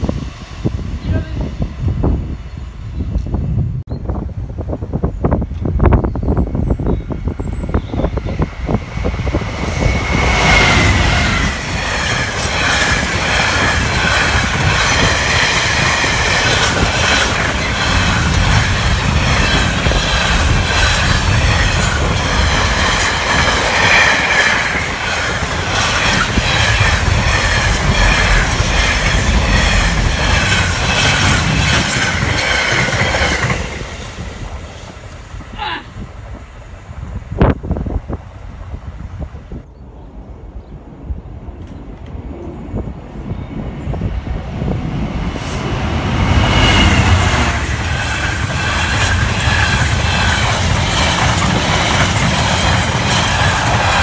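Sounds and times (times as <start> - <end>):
diesel locomotive passing: 0.0 - 54.0
train wheels clattering and squealing: 5.6 - 35.1, 45.4 - 54.0.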